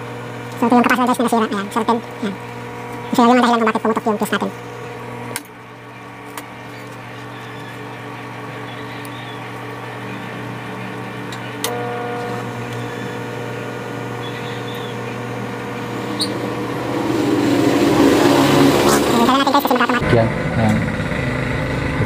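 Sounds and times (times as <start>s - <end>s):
microwave oven humming: 0.0s - 22.0s
high tone: 14.0s - 20.0s.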